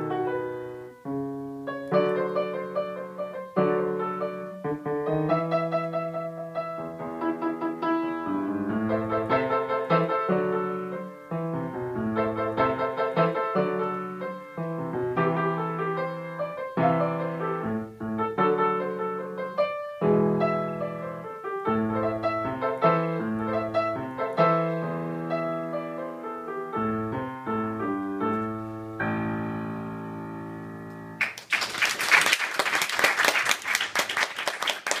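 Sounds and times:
solo piano playing: 0:00.0 - 0:31.2
audience applause: 0:31.2 - 0:35.0.

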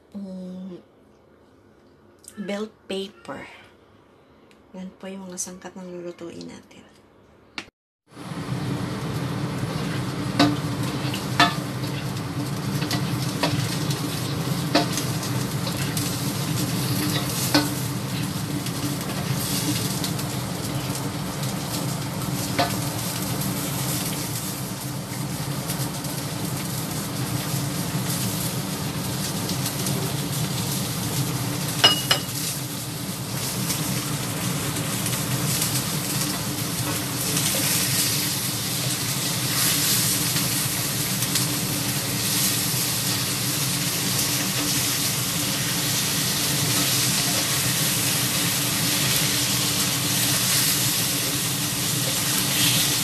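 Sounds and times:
peppers sizzling in a wok: 0:08.1 - 0:53.0
spatula scraping a wok: 0:09.7 - 0:19.9, 0:48.9 - 0:53.0.

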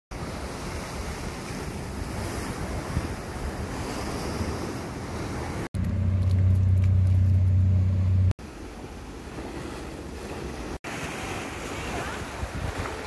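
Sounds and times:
waves washing on rocky shore: 0:00.1 - 0:05.7, 0:08.4 - 0:13.0
wind on microphone: 0:00.2 - 0:08.2, 0:09.6 - 0:13.0
steady low hum: 0:05.8 - 0:08.4.

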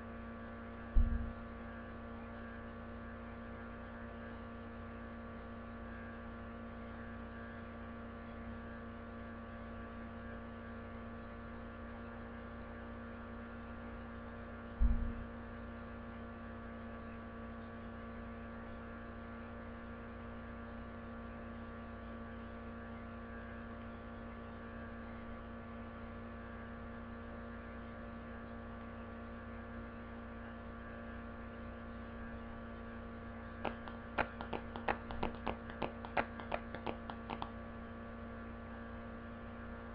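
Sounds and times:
electrical hum: 0:31.9 - 0:37.9.

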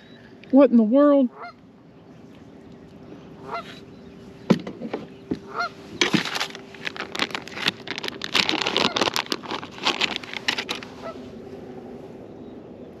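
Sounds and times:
steady low hum: 0:00.0 - 0:13.0
geese honking: 0:01.3 - 0:01.6, 0:03.4 - 0:03.8, 0:05.4 - 0:06.1, 0:10.7 - 0:11.3.

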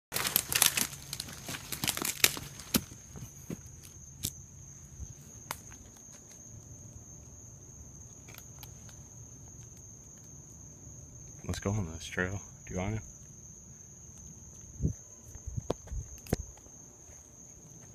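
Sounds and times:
twigs snapping: 0:00.1 - 0:03.0, 0:03.8 - 0:04.4, 0:08.2 - 0:10.4, 0:15.6 - 0:16.7
footsteps crunching dry vegetation: 0:00.1 - 0:04.4
crickets trilling: 0:00.1 - 0:17.9.

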